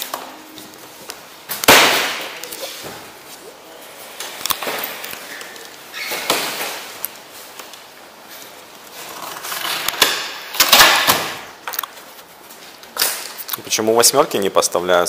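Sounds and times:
rustling and scraping: 0:02.2 - 0:10.3, 0:11.8 - 0:13.5.

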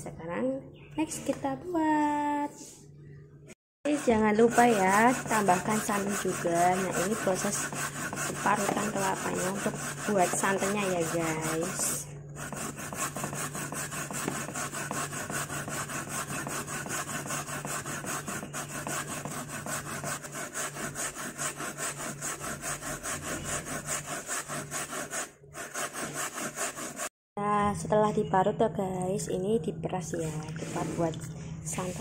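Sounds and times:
coconut being grated by hand: 0:03.9 - 0:27.1.

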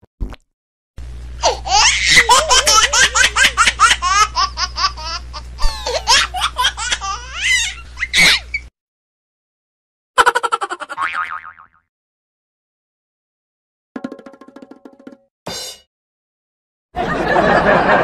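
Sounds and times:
steady low hum: 0:01.0 - 0:08.7
high-pitched laughter: 0:01.4 - 0:08.6, 0:10.2 - 0:11.0.

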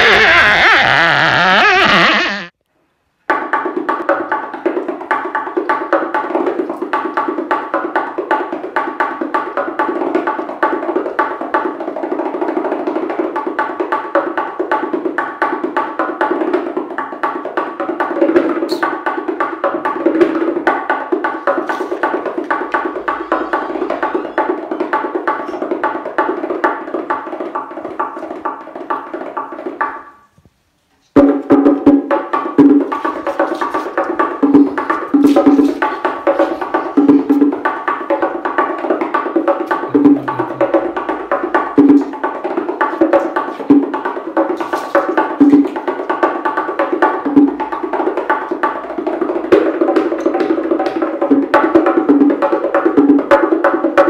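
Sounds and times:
music with clicking percussion: 0:03.3 - 0:30.2, 0:31.2 - 0:54.0.

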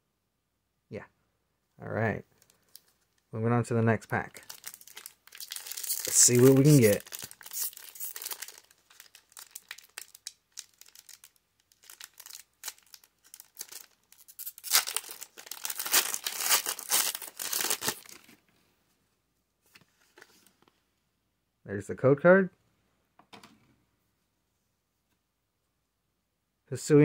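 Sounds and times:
foil pack tearing open: 0:04.4 - 0:18.2
foil wrapper crinkling: 0:04.4 - 0:18.3.

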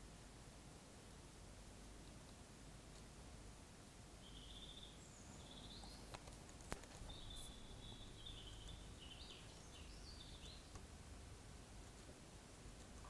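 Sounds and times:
faint bird chirping: 0:04.1 - 0:13.0.

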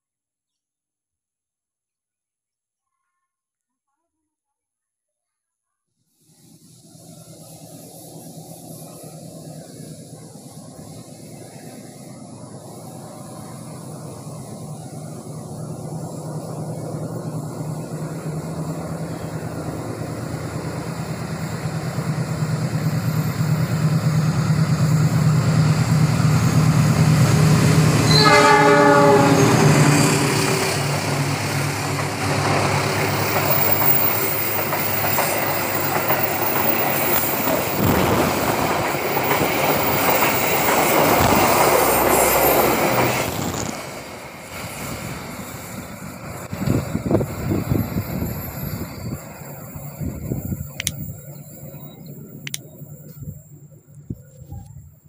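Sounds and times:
diesel locomotive engine: 0:06.3 - 0:55.0
train wheels clattering: 0:29.5 - 0:44.9
high squeal of wheels: 0:33.2 - 0:37.8, 0:46.5 - 0:53.0.

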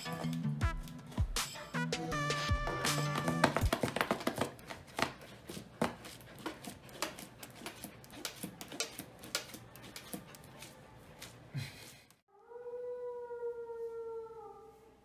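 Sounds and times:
puppy scratching cardboard box: 0:03.2 - 0:11.5.

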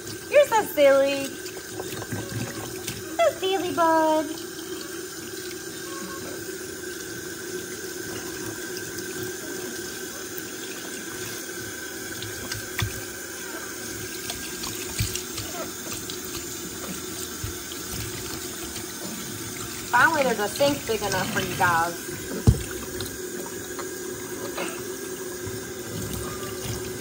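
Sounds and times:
tap water running into sink: 0:00.0 - 0:27.0.

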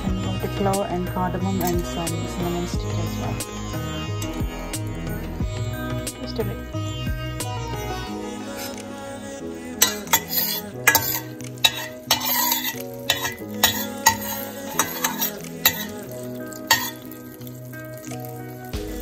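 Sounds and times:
spices sizzling in oil: 0:00.0 - 0:19.0
spoon clinking against pan: 0:09.8 - 0:17.2.

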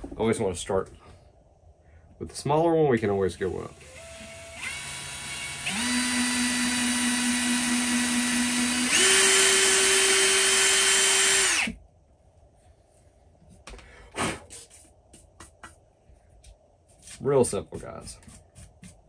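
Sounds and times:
cordless drill boring into wood: 0:03.4 - 0:11.8.

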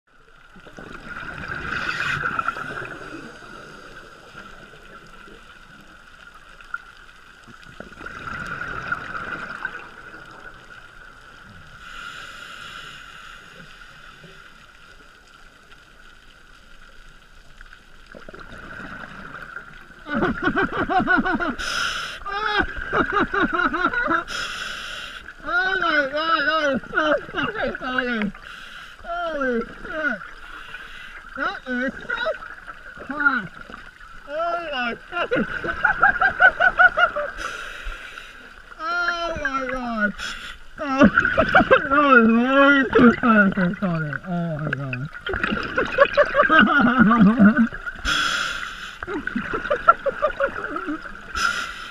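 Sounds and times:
exhaled bubbles rushing: 0:00.6 - 0:05.5, 0:07.6 - 0:11.1, 0:42.7 - 0:48.0
muffled bubbling laughter: 0:20.0 - 0:21.6, 0:22.3 - 0:24.3, 0:26.8 - 0:27.9, 0:35.1 - 0:37.4, 0:40.8 - 0:43.3, 0:45.5 - 0:47.8, 0:49.1 - 0:51.1
diver breathing through regulator: 0:48.0 - 0:49.1, 0:51.3 - 0:51.9.

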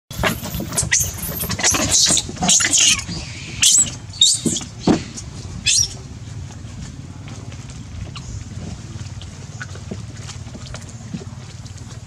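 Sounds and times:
macaques squealing and screeching: 0:00.3 - 0:06.0.

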